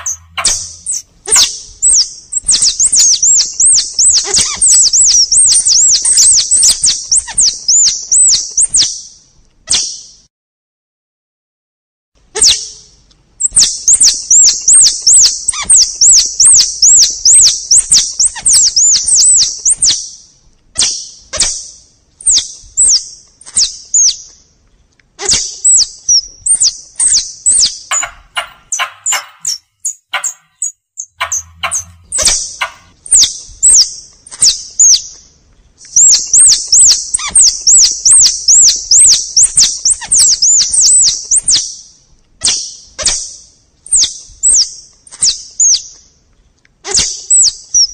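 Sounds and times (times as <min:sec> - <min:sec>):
high-pitched looping chirps: 0:00.0 - 0:01.0, 0:27.9 - 0:32.9
sharp clicks: 0:27.9 - 0:32.9.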